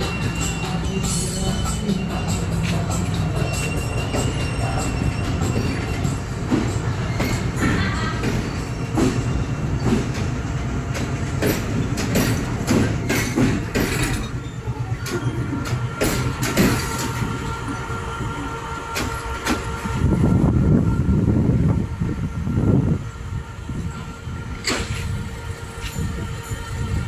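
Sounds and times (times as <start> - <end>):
train rumble: 0.0 - 27.0
train wheels clicking over rail joints: 1.6 - 17.5, 18.9 - 19.8, 24.6 - 25.2.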